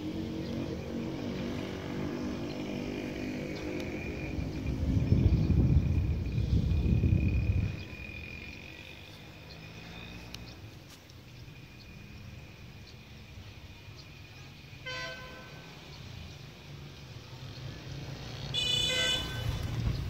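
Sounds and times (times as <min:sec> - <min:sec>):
wind rumble on microphone: 0:03.5 - 0:08.8
vehicle horn toot: 0:14.8 - 0:15.7, 0:18.5 - 0:19.7.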